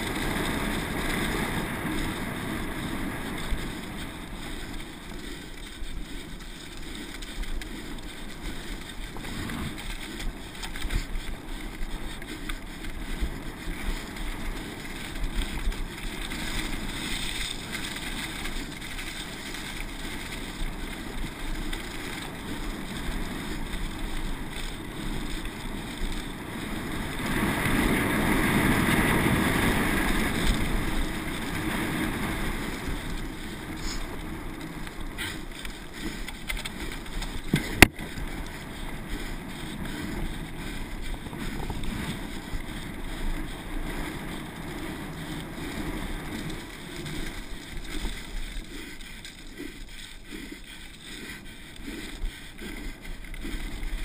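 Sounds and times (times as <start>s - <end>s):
bike tyres rattling over trail: 0.0s - 54.0s.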